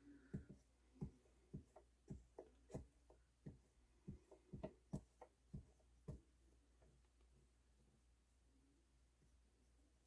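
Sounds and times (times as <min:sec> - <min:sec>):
cotton swab scraping and tapping: 0:00.0 - 0:07.5.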